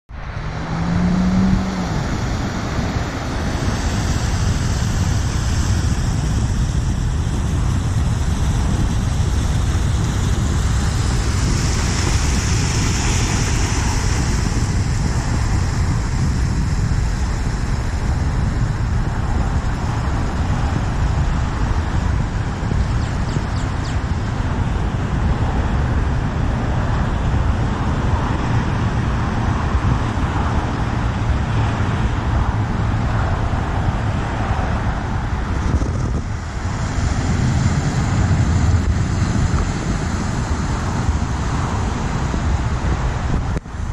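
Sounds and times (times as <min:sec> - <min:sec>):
car splashing through floodwater: 0:00.1 - 0:43.9.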